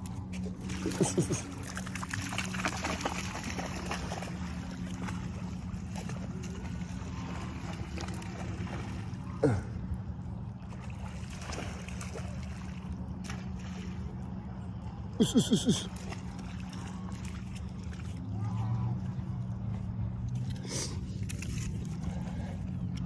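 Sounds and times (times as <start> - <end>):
low motor-like drone: 0.0 - 23.0
dog splashing in water: 0.6 - 9.1.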